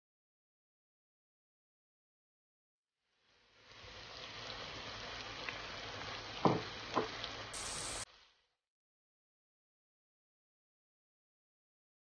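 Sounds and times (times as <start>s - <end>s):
fish and beans sizzling in oil: 3.1s - 8.6s.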